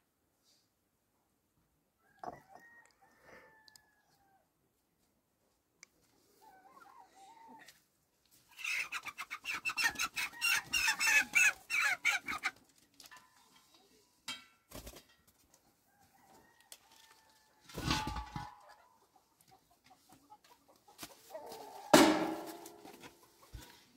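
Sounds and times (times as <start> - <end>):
chicken clucking: 6.2 - 7.8, 8.4 - 14.2, 15.6 - 23.9.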